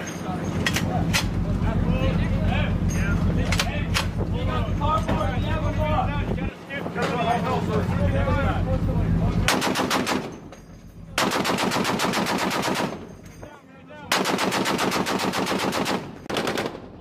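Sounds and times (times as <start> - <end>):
machine gun automatic fire: 9.5 - 10.4, 11.2 - 13.1, 14.1 - 17.0.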